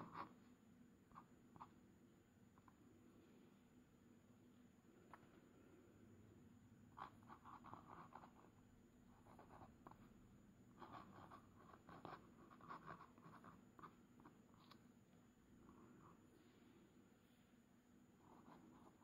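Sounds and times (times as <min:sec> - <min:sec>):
pen nib scratching paper: 0:00.0 - 0:00.4, 0:06.9 - 0:10.1, 0:10.7 - 0:14.8, 0:18.2 - 0:19.0.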